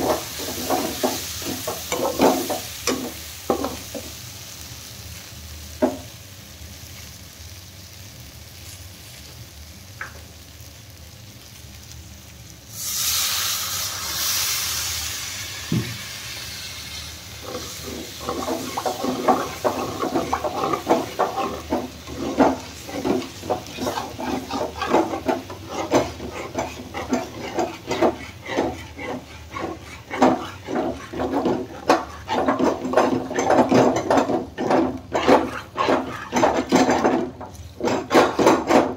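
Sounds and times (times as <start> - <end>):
metal spatula scraping pan: 0.0 - 4.1, 17.4 - 38.9
food frying in a pan: 0.0 - 38.9
water hissing in hot pan: 0.0 - 38.9
spatula tapping: 17.5 - 38.9.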